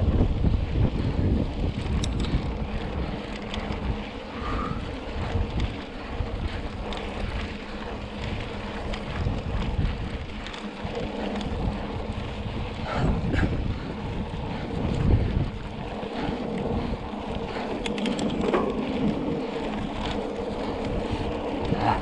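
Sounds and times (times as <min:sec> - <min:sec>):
bike rolling on dirt road: 0:00.0 - 0:22.0
wind buffeting microphone: 0:00.0 - 0:22.0
small ticks: 0:01.7 - 0:13.1, 0:14.5 - 0:22.0.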